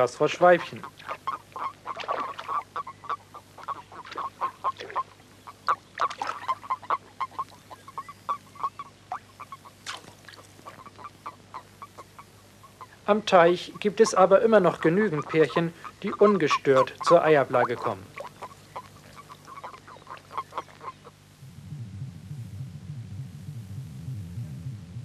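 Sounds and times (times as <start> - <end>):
toads croaking: 0.0 - 21.4
faint low hum: 0.0 - 25.0.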